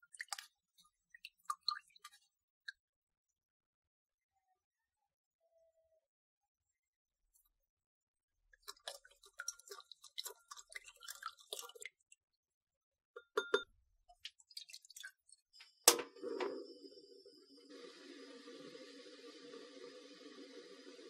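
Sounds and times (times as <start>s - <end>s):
liquid pouring into pan: 8.7s - 11.9s.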